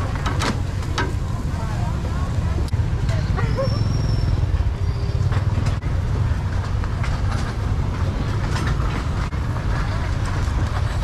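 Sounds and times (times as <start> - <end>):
street traffic rumble: 0.0 - 11.0
faint clicks and clatter: 5.3 - 11.0.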